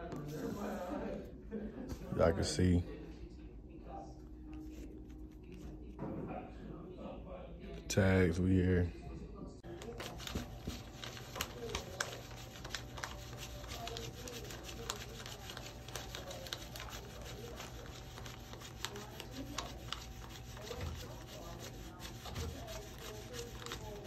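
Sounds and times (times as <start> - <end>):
banknotes flicked by hand: 9.7 - 24.0.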